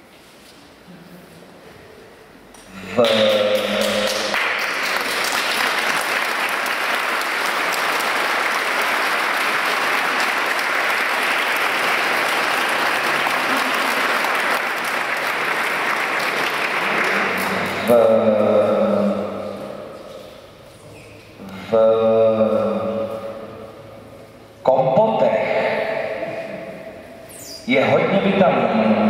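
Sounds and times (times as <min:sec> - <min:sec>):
audience applauding: 0:03.0 - 0:17.9.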